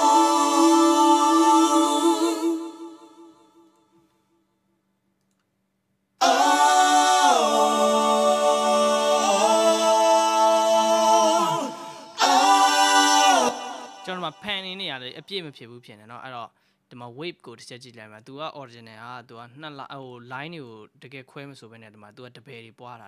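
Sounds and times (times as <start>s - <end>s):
a cappella vocal harmony: 0.0s - 4.0s, 6.2s - 14.6s.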